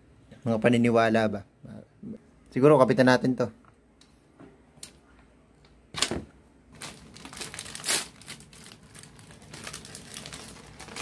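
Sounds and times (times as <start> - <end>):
plastic packaging crinkling: 6.0 - 11.0.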